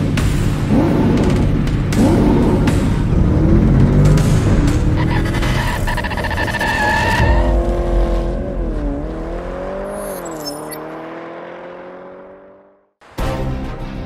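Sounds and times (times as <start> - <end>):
music: 0.0 - 7.7, 13.0 - 14.0
racing car engine at high revs: 0.0 - 13.0.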